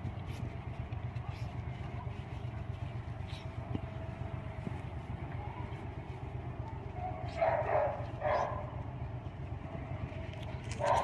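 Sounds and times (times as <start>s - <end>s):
steady low rumble: 0.0s - 11.0s
dog barking: 7.0s - 8.8s, 10.8s - 11.0s.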